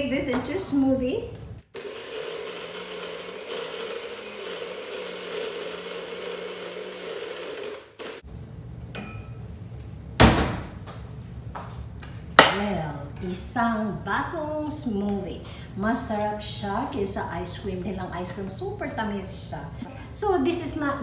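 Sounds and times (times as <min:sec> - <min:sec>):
blender running: 0:01.7 - 0:08.2.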